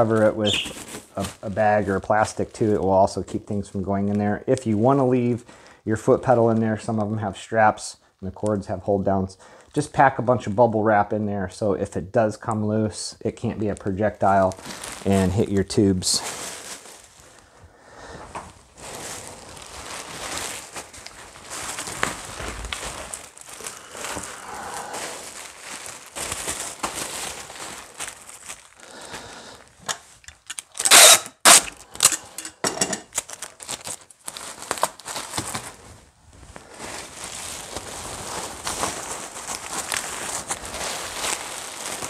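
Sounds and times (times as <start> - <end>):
sharp bubble wrap crackles: 0.0 - 2.8, 13.6 - 17.5, 18.4 - 32.3, 33.1 - 42.0
bubble wrap crinkling: 0.0 - 5.3, 13.3 - 42.0.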